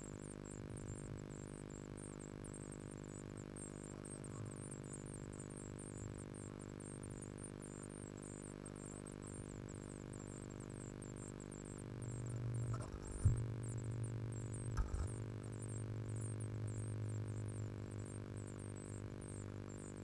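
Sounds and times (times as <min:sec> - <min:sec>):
steady electrical hum: 0:00.0 - 0:20.0
sharp knock: 0:14.8 - 0:15.1.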